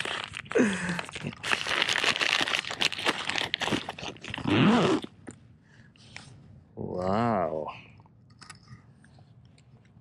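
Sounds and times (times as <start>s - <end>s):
plastic packet crinkling: 0.0s - 4.5s.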